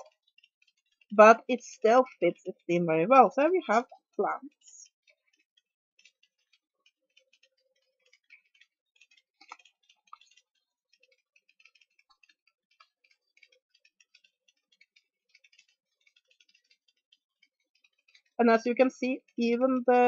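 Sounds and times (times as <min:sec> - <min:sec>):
cards clicking in hands: 0:05.3 - 0:18.4.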